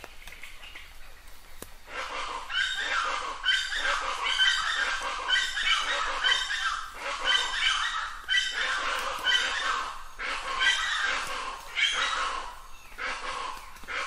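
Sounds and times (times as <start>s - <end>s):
birds calling harshly: 0.0s - 14.0s.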